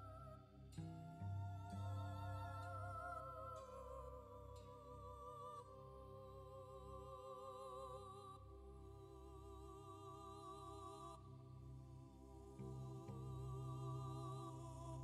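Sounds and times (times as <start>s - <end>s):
slow music with held notes: 0.0s - 15.0s.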